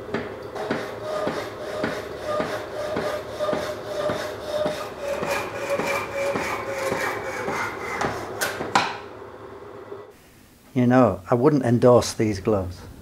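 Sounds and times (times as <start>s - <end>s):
power hacksaw cutting steel: 0.6s - 8.4s.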